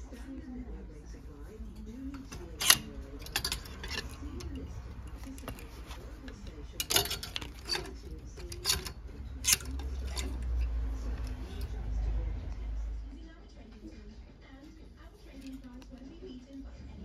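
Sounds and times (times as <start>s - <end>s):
wooden hangers clacking: 1.7s - 11.8s.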